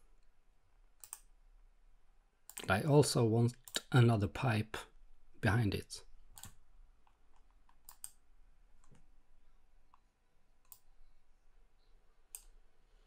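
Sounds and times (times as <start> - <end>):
computer mouse clicks: 1.0 - 1.3, 6.3 - 8.2, 8.8 - 9.1, 9.9 - 11.0, 12.3 - 12.6.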